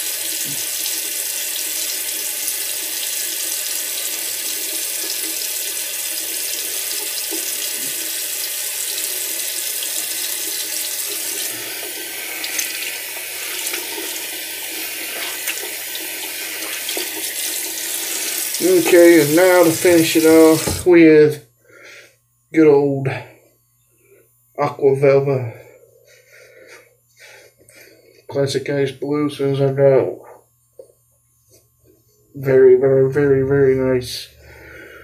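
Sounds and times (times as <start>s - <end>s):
tap water running into sink: 0.0s - 20.9s.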